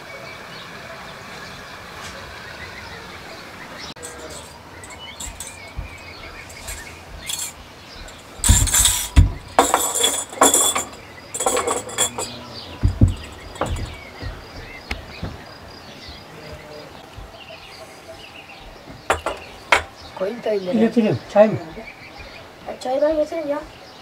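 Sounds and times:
faint birdsong: 0:00.0 - 0:24.0
dishes clinking and knocking: 0:04.0 - 0:15.5, 0:18.6 - 0:20.2.

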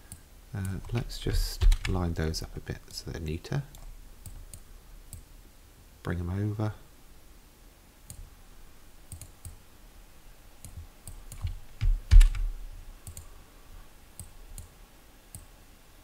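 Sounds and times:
mouse clicking: 0:09.1 - 0:09.6, 0:13.0 - 0:13.3.

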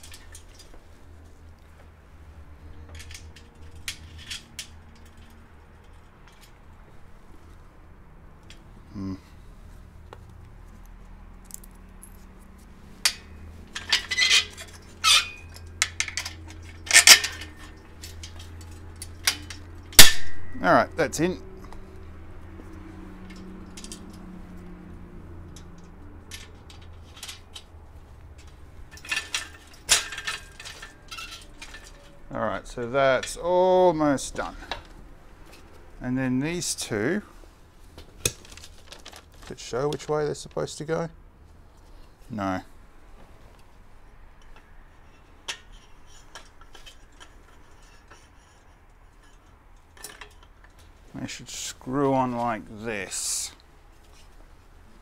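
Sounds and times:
small metal parts clinking: 0:00.0 - 0:00.8, 0:02.7 - 0:06.6, 0:11.3 - 0:20.8, 0:22.6 - 0:24.7, 0:25.4 - 0:33.4, 0:49.2 - 0:50.9
low steady hum: 0:00.0 - 0:39.6
metal hardware clicks and taps: 0:02.7 - 0:06.6, 0:13.0 - 0:20.6, 0:22.6 - 0:24.3, 0:25.4 - 0:32.2, 0:49.2 - 0:50.9.

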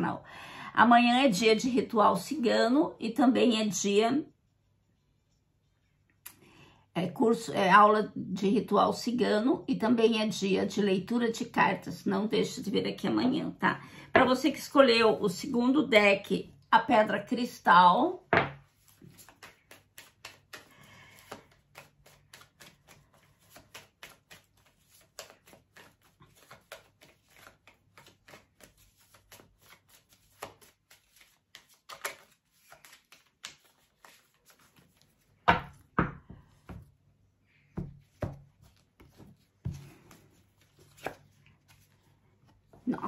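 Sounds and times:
cards knocking on table: 0:18.3 - 0:18.6, 0:35.4 - 0:36.9
cards being shuffled: 0:18.3 - 0:37.0, 0:37.8 - 0:43.0.

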